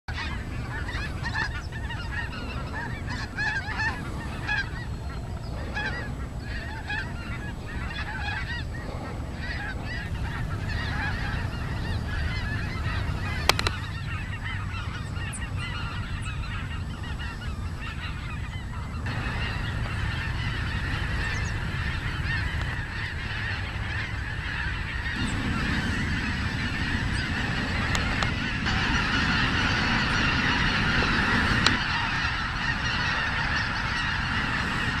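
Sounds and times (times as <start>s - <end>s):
geese honking: 0.1s - 35.0s.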